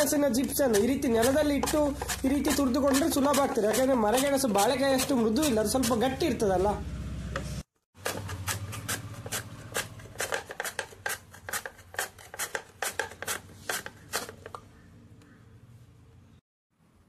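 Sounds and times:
metal slicer rasping root: 0.3s - 6.4s, 8.0s - 14.5s.

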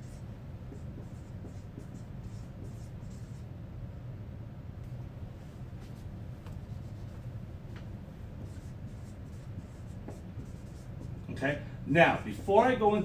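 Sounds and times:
marker writing on whiteboard: 0.0s - 3.5s, 5.9s - 7.3s, 8.4s - 13.0s
low room hum: 0.0s - 13.0s.

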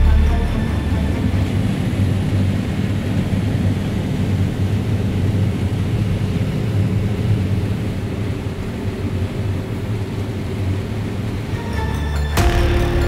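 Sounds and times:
combine harvester engine droning: 0.0s - 13.0s.

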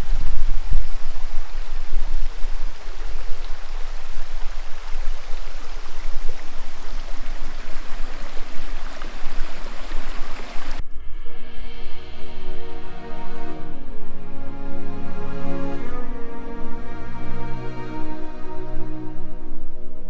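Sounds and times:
stream running: 0.0s - 10.8s
music: 10.8s - 20.0s.

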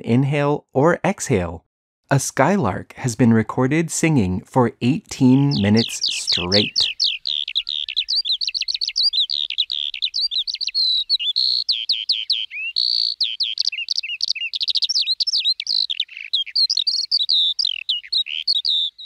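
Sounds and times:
skylark singing: 5.0s - 19.0s.

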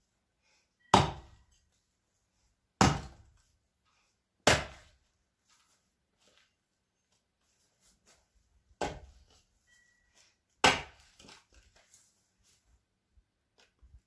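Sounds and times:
axe chopping wood: 0.9s - 1.4s, 2.8s - 3.3s, 4.4s - 4.9s, 8.8s - 9.2s, 10.6s - 11.3s.

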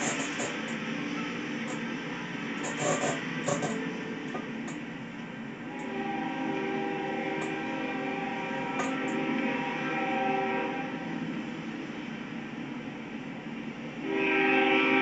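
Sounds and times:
steady rumble: 0.0s - 9.6s
locomotive horn chord: 5.6s - 11.2s, 14.0s - 15.0s.

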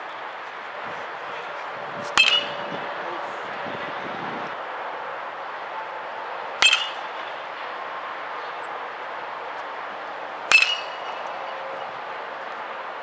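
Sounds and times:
metal bat hitting ball: 2.0s - 2.8s, 6.6s - 7.4s, 10.5s - 11.4s.

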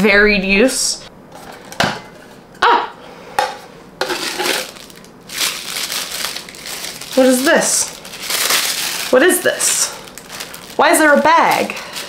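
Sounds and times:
plastic bag crinkling: 4.1s - 12.0s.

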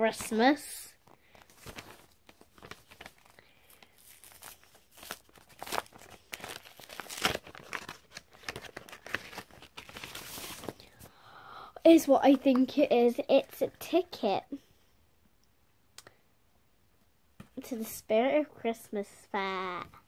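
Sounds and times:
paper envelope tearing and crinkling: 1.4s - 10.8s.

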